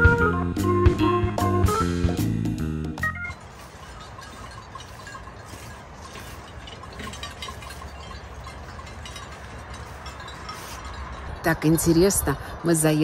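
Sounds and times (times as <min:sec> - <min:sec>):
sheep bells tinkling: 0:03.0 - 0:13.0.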